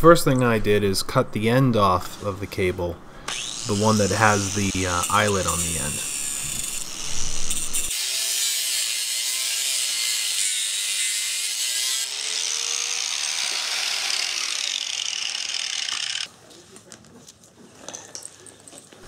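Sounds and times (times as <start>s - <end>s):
angle grinder cutting steel cable: 3.3s - 16.3s.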